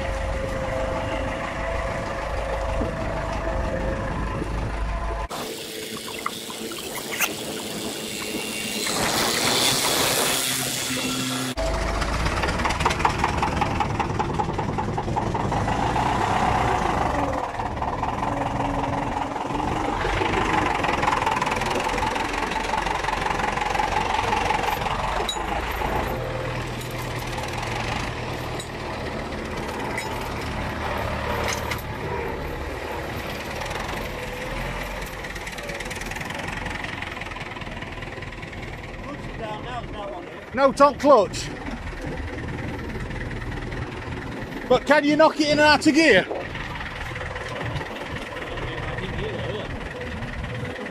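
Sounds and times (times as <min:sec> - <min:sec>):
tractor diesel engine running: 0:00.0 - 0:50.9.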